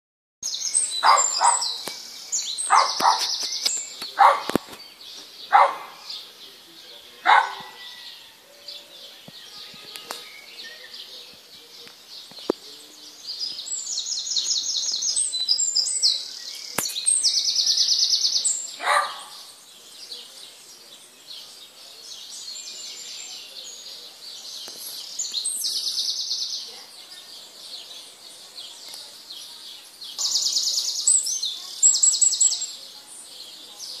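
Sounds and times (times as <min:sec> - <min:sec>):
songbirds trilling: 0:00.4 - 0:34.0
short lower bird calls: 0:07.2 - 0:11.2.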